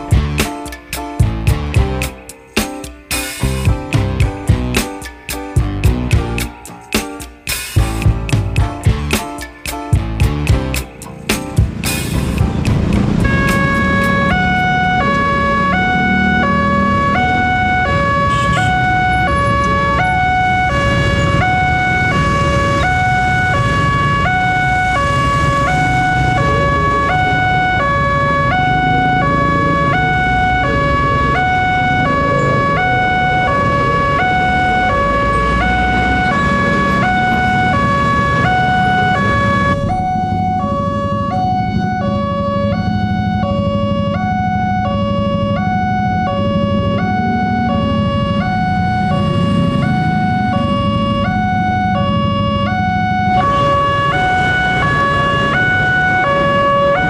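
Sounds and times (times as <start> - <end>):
traffic rumble: 0.0 - 57.0
level-crossing two-tone alarm: 13.2 - 57.0.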